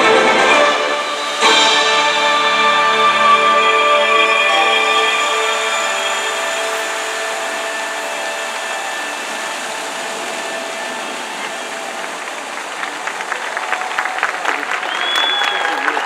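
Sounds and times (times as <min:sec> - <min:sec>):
music: 0:00.0 - 0:12.1
fountain jets rushing: 0:00.0 - 0:16.0.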